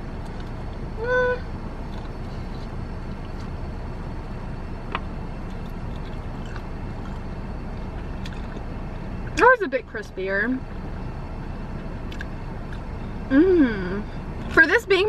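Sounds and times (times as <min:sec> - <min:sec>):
car idling rumble: 0:00.0 - 0:15.0
closed-mouth hum: 0:00.0 - 0:15.0
faint chewing: 0:01.8 - 0:03.6, 0:04.9 - 0:09.0
small eating clicks: 0:04.9 - 0:09.4.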